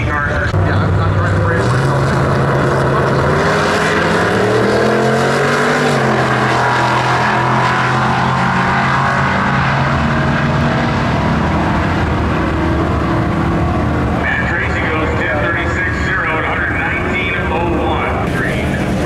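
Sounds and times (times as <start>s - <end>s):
drag cars at full throttle: 0.0s - 19.0s.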